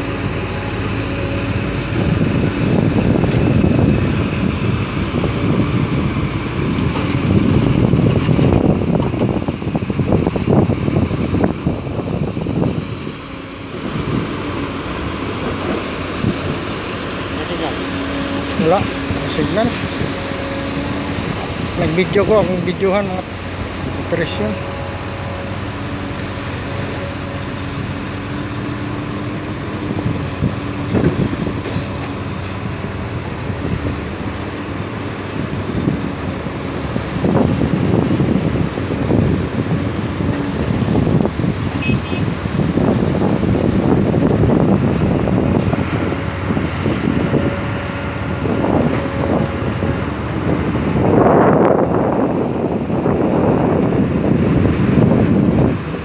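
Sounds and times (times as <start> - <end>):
excavator and dump trucks running: 0.0 - 56.0
wind buffeting microphone: 0.0 - 56.0.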